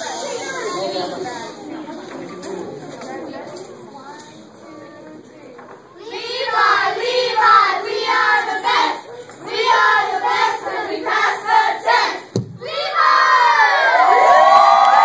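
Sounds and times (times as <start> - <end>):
children chanting in unison: 6.0 - 13.9
children cheering and shouting: 12.0 - 15.0
single thump: 12.3 - 12.6.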